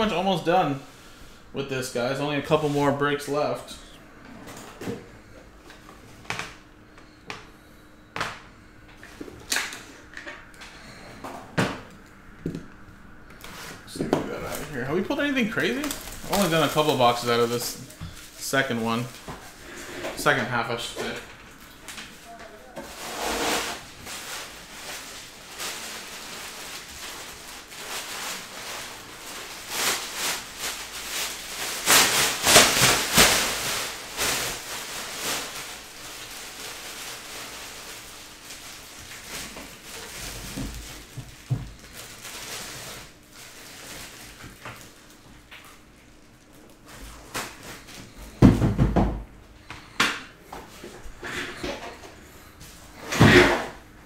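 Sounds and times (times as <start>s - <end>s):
cardboard packaging rustling: 13.4s - 20.4s, 21.0s - 45.2s.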